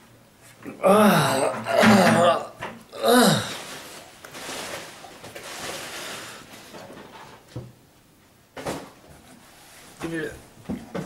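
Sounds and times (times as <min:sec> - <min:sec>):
man groaning: 0:00.7 - 0:03.6.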